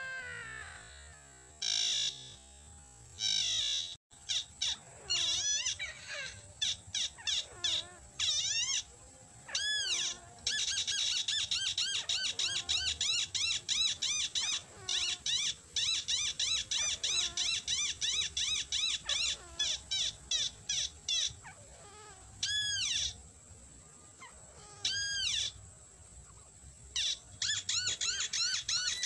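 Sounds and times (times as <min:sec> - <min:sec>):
bird squeaky call series: 0:27.0 - 0:29.0
longer single bird calls: 0:27.0 - 0:29.0.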